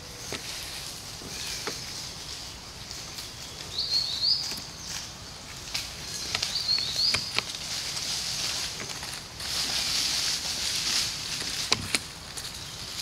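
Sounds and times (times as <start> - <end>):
twigs and leaves rustling: 0.0 - 13.0
bird chirping: 1.2 - 5.4, 6.0 - 7.5.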